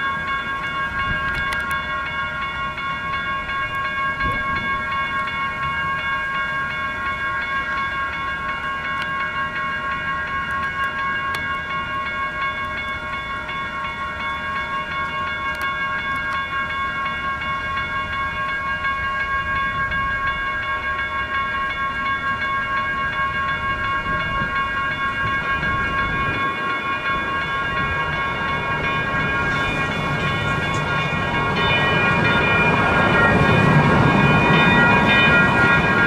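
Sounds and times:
light rail train rumble: 0.0s - 36.0s
railroad crossing bells ringing: 0.0s - 36.0s.

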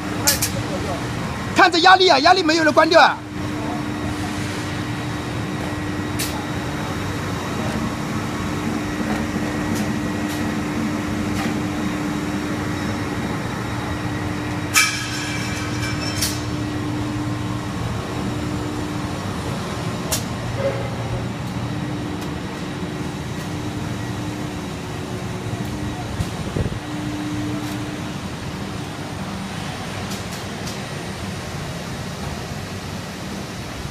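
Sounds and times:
machine hum: 0.0s - 33.9s
metallic clattering with ringing: 14.7s - 16.8s.

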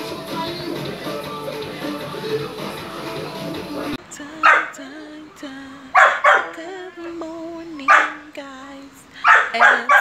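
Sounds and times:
dog barking: 4.4s - 4.8s, 6.0s - 6.6s, 7.8s - 8.2s, 9.2s - 10.0s.

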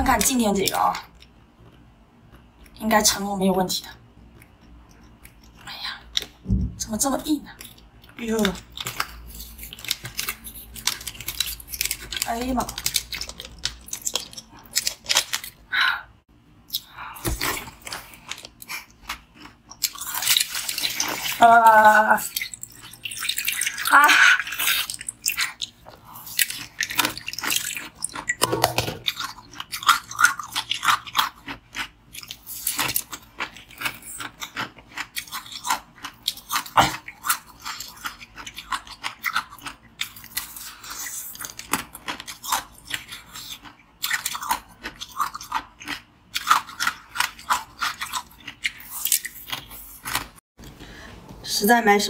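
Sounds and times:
chewing crunchy ice: 7.5s - 15.6s, 16.7s - 21.4s, 22.2s - 50.4s.

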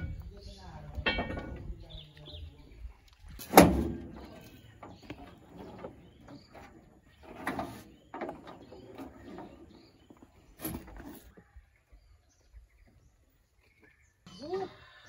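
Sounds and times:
knocks and clunks: 0.0s - 2.0s, 3.3s - 11.2s.

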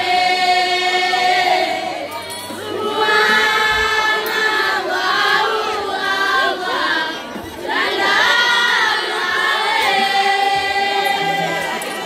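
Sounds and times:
women's choir chanting: 0.0s - 12.0s.

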